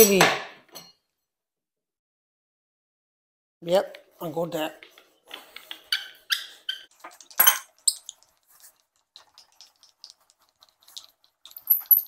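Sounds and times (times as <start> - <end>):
tools and wood handled on workbench: 4.6 - 8.2
hand brace squeaking: 5.3 - 8.1.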